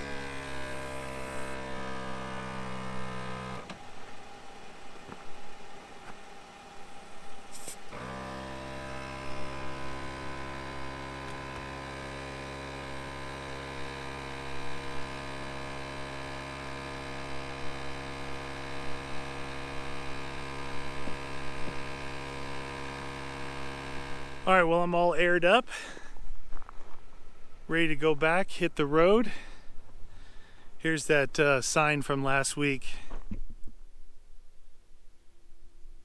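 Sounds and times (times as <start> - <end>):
air compressor humming: 0.0 - 24.9.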